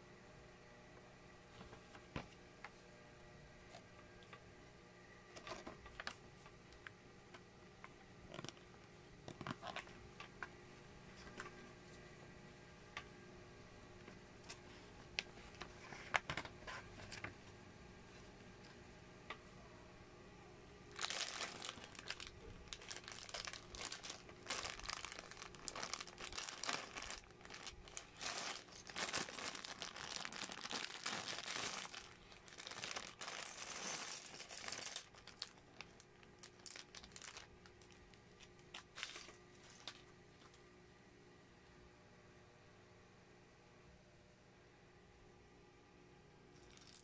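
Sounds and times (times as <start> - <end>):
plastic bag crinkling: 20.9 - 40.1, 46.6 - 47.0.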